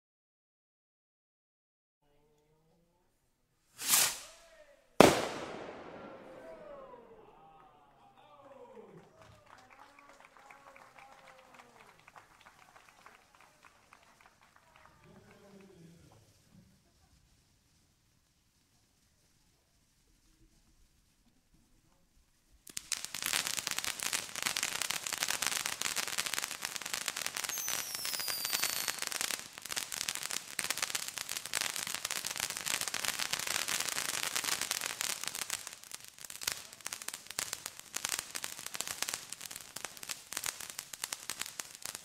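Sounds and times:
firework fountain crackling: 3.7s - 42.0s
falling whistle: 27.5s - 29.0s.

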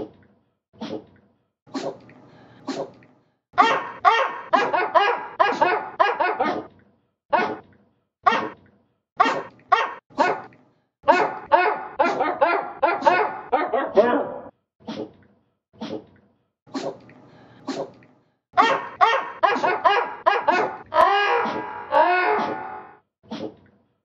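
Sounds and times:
small dog barks edited into melody: 3.6s - 6.7s, 7.3s - 7.6s, 8.3s - 8.6s, 9.2s - 10.5s, 11.1s - 14.5s, 18.6s - 20.8s.

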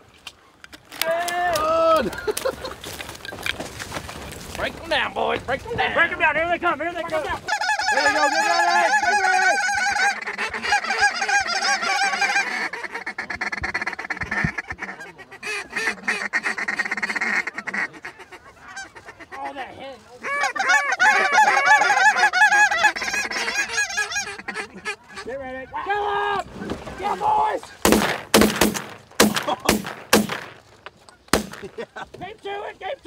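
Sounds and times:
geese honking: 7.2s - 31.8s.

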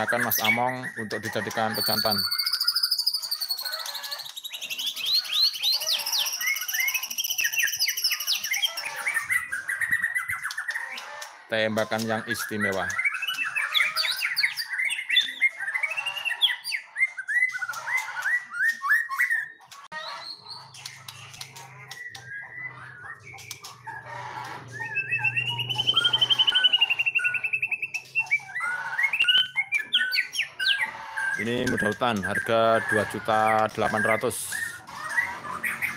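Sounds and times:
bird trill: 0.0s - 35.9s
bird singing whistles: 1.8s - 3.8s, 4.4s - 10.7s, 12.9s - 19.5s, 24.7s - 33.0s.

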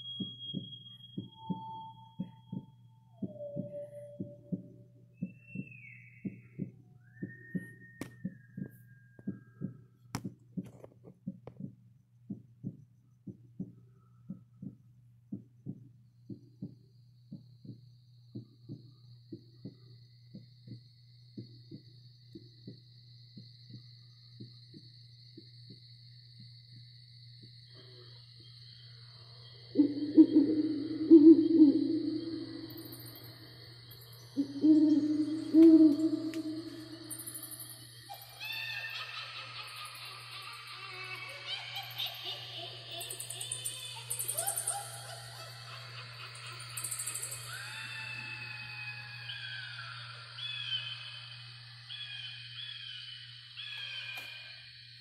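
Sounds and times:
wavering owl hoots: 0.0s - 8.7s, 27.8s - 55.0s
heartbeat thumps: 0.0s - 27.6s
steady low hum: 0.0s - 55.0s.

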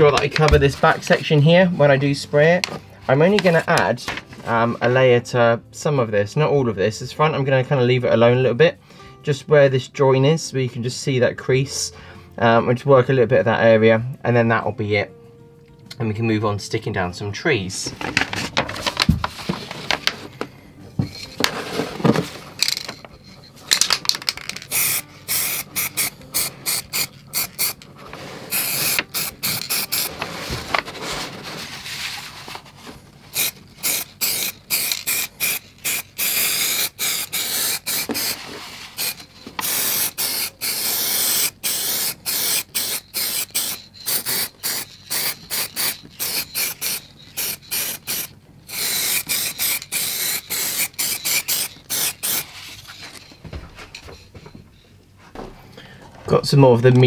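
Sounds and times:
aerosol can spraying: 24.5s - 27.9s, 28.5s - 30.2s, 33.3s - 53.3s.

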